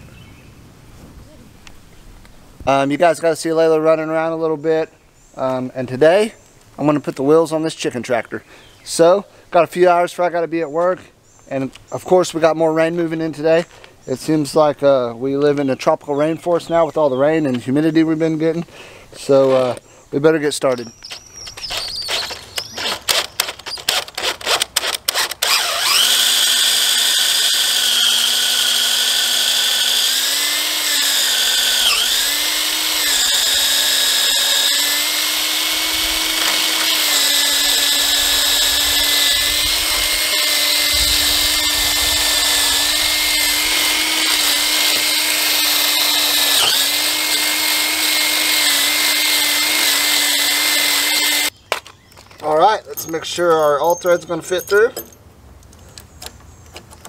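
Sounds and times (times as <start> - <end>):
cordless drill boring wood: 21.6 - 51.5.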